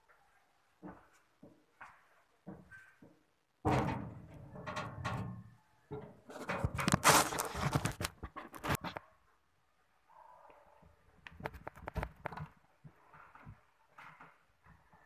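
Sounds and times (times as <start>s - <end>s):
handling knocks clicks and scrapes: 2.5s - 9.1s.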